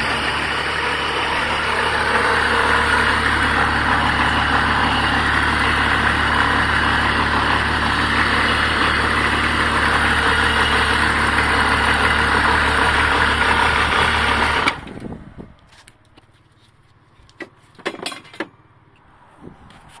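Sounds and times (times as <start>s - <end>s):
diesel engine running: 0.0s - 16.0s.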